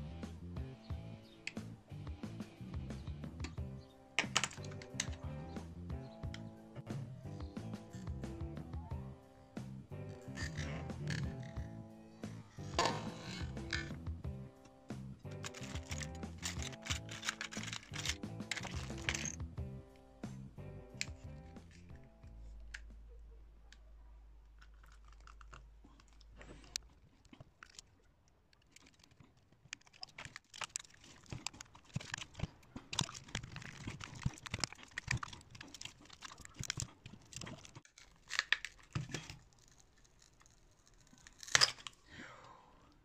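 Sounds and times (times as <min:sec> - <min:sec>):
faint low hum: 0:00.0 - 0:37.9
plastic shell pried apart: 0:15.3 - 0:19.4, 0:28.6 - 0:42.0
plastic tearing and crinkling: 0:15.3 - 0:19.4, 0:24.5 - 0:42.1.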